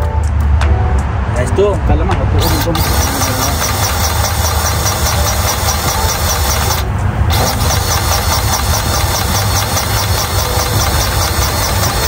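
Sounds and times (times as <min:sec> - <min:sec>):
diesel engine running: 0:02.3 - 0:12.0
faint regular ticking: 0:02.4 - 0:12.0.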